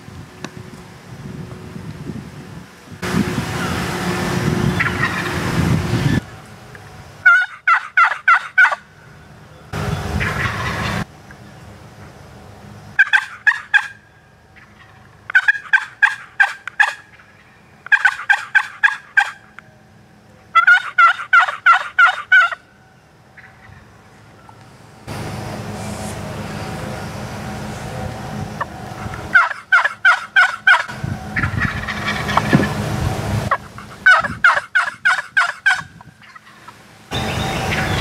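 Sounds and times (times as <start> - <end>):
turkey gobbling: 4.8 - 5.4, 7.2 - 8.9, 10.2 - 11.0, 13.0 - 19.6, 20.5 - 22.7, 23.4 - 23.9, 29.3 - 32.8, 33.5 - 36.8.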